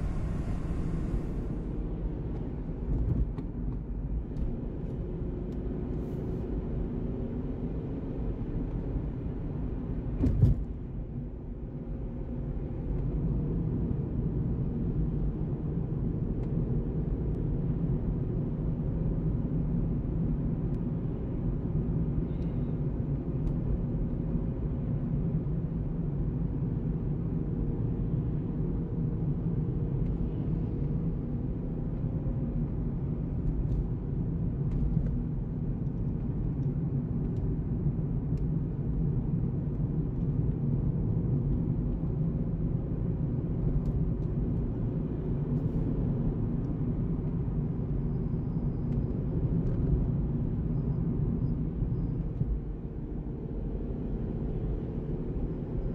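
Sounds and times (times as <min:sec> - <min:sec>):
car engine: 0:00.0 - 0:03.0.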